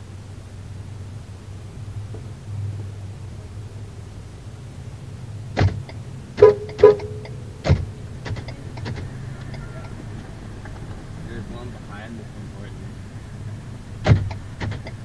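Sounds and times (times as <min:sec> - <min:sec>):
low vehicle hum: 0:00.0 - 0:15.0
car door closing thump: 0:05.6 - 0:09.1, 0:14.0 - 0:14.9
car door knock: 0:05.6 - 0:09.6, 0:14.0 - 0:15.0
short ringing chime tones: 0:06.4 - 0:07.6.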